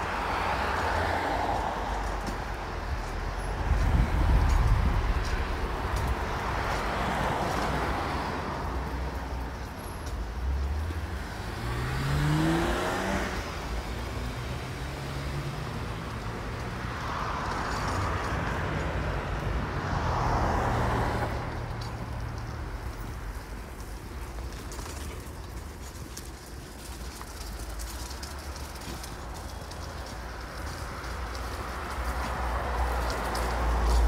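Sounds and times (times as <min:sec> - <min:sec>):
cars passing on street: 0:00.0 - 0:34.0
car engine accelerating: 0:10.7 - 0:16.0.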